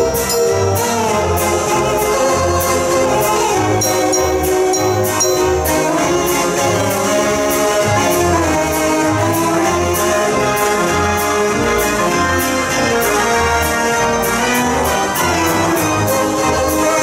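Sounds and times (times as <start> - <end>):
percussion beat: 0.0 - 1.2, 2.5 - 6.4
dance organ melody: 0.0 - 8.0
pulsing bass notes: 0.0 - 17.0.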